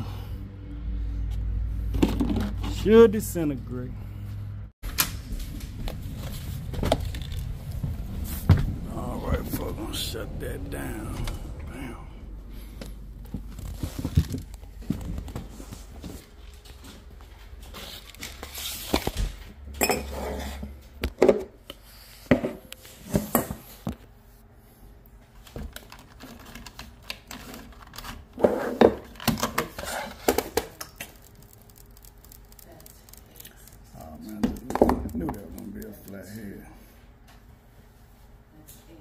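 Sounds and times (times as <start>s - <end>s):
low hum: 0.0s - 17.1s.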